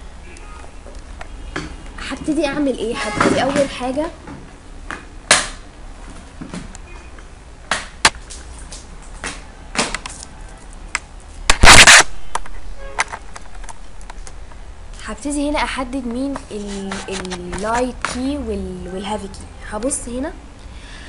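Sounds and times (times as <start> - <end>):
loud noise burst: 11.5 - 12.2.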